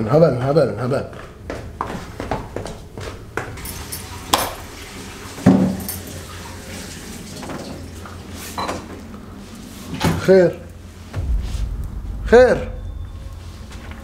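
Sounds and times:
heavy thump: 0:11.1 - 0:14.0.

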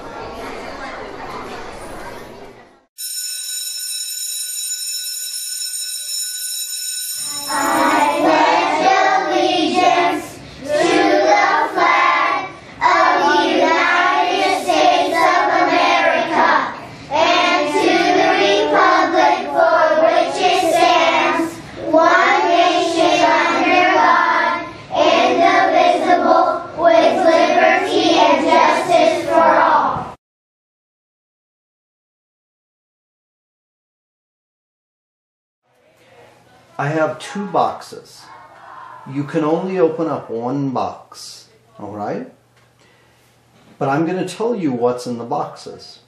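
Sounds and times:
children reciting in unison: 0:07.4 - 0:30.2, 0:38.2 - 0:39.7.

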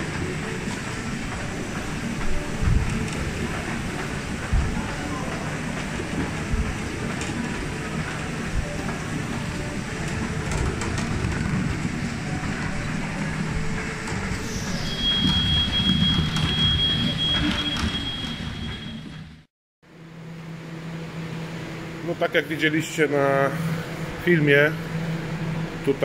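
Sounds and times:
high whine sliding down: 0:00.0 - 0:19.2
conveyor belts clattering and humming: 0:00.0 - 0:26.0.

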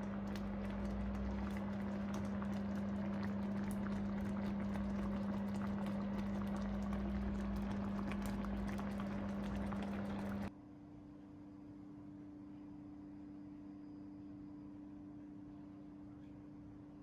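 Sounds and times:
sauce bubbling and popping: 0:00.0 - 0:10.5
steady low hum: 0:00.0 - 0:10.5.

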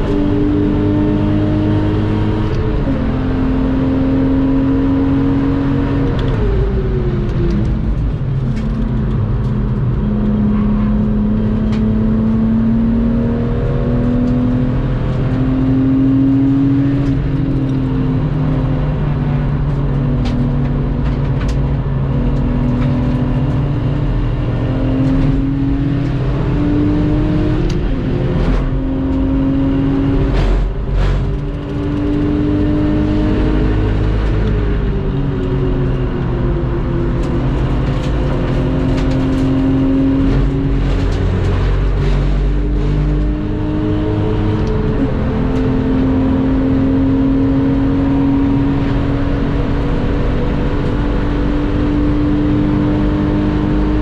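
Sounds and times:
car engine revving hard: 0:00.0 - 0:07.6, 0:09.1 - 0:54.0.

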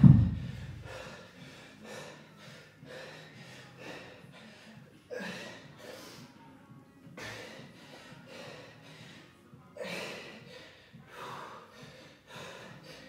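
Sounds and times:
man breathing hard: 0:00.2 - 0:06.3, 0:07.2 - 0:13.0.

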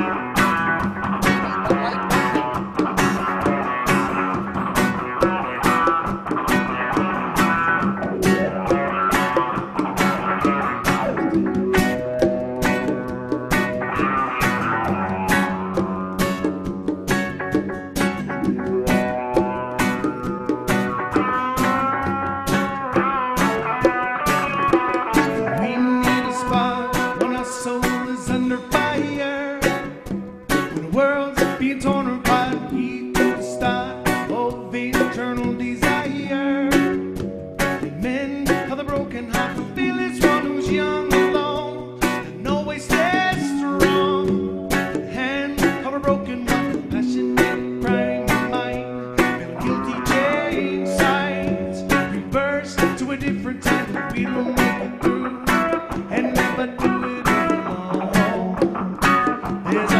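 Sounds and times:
conga drums: 0:00.0 - 0:59.9
live rock reggae band: 0:00.0 - 0:59.9
man singing: 0:01.2 - 0:05.5, 0:25.1 - 0:37.1, 0:37.9 - 0:59.9.

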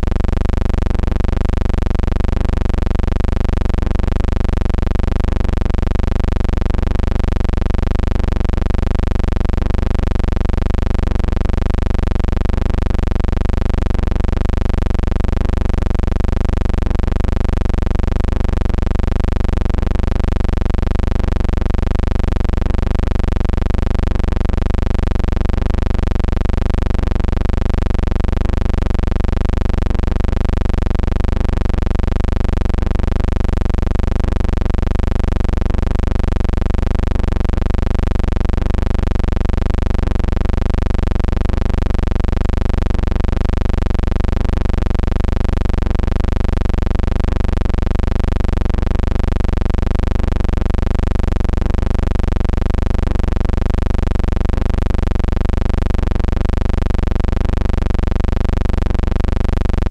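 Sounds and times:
loud low hum: 0:00.0 - 0:04.0, 0:59.7 - 0:59.9.

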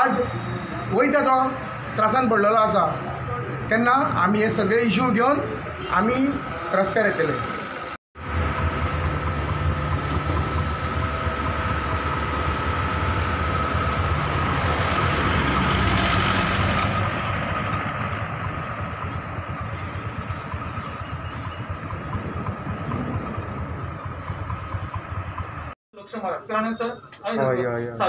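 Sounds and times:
tyre and road noise: 0:01.6 - 0:25.8
vehicle engine running: 0:08.2 - 0:25.8.

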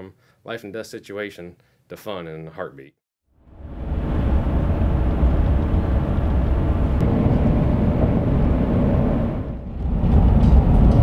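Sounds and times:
car road and engine rumble: 0:03.6 - 0:09.6.

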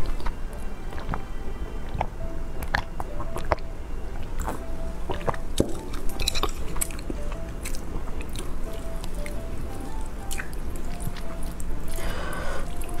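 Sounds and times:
chewing with wet mouth clicks: 0:00.0 - 0:01.2, 0:01.8 - 0:13.0
quiet background music: 0:00.0 - 0:13.0.

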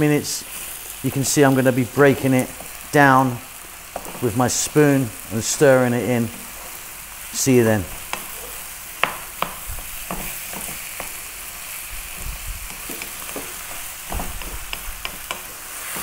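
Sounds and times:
meat sizzling in a frying pan: 0:00.0 - 0:16.0
wooden spoon scraping a pan: 0:03.8 - 0:04.7, 0:07.9 - 0:16.0.

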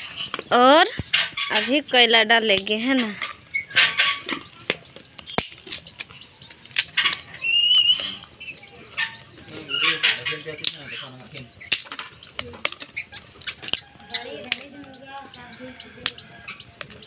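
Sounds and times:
bird chirping: 0:00.0 - 0:17.0
sticks snapping into a wood fire: 0:00.3 - 0:15.4, 0:16.0 - 0:17.0
sharp clicks: 0:07.9 - 0:15.4.

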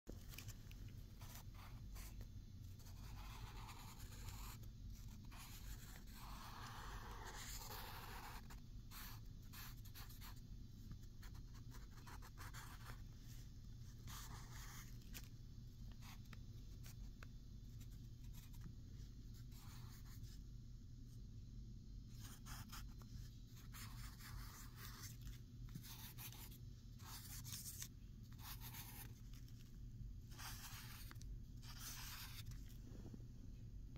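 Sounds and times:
faint low hum: 0:00.1 - 0:33.9
pen scratching on paper: 0:01.2 - 0:13.0, 0:13.9 - 0:15.3, 0:16.0 - 0:17.0, 0:19.4 - 0:20.4, 0:22.1 - 0:29.4, 0:30.3 - 0:32.7.

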